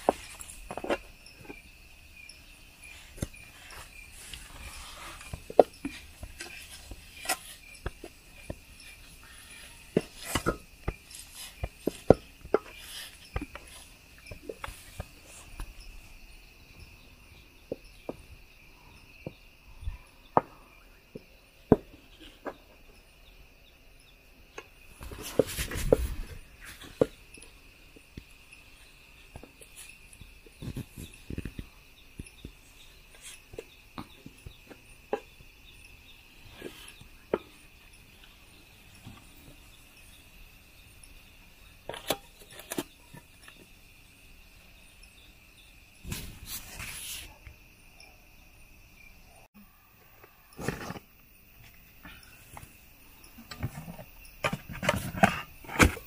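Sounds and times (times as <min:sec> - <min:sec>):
crickets trilling: 0:00.0 - 0:56.0.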